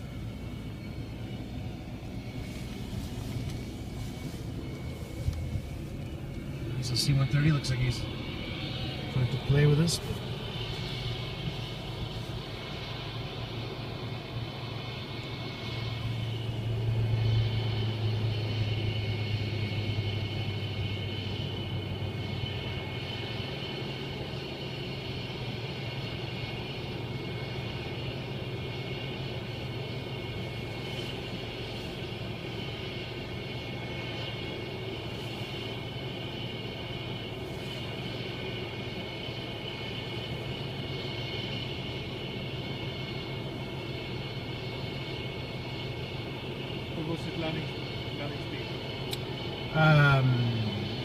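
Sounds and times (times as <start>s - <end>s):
jet engine idling: 0.0s - 51.0s.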